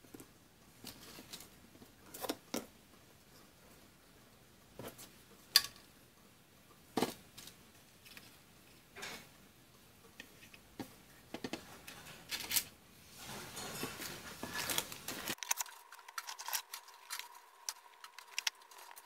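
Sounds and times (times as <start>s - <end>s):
faint steady hum: 0.0s - 19.0s
paper rustling: 11.6s - 19.0s.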